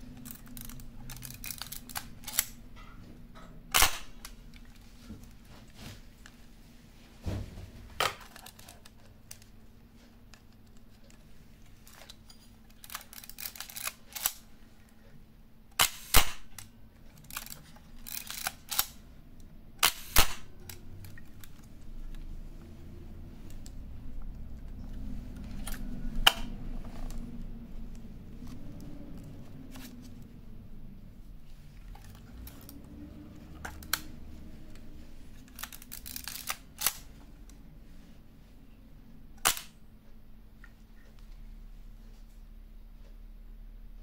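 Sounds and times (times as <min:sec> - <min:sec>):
camera mechanical clicks: 0:00.2 - 0:02.6, 0:03.7 - 0:04.4, 0:12.8 - 0:14.4, 0:15.8 - 0:19.0, 0:19.8 - 0:21.6, 0:35.5 - 0:37.1, 0:39.4 - 0:39.8.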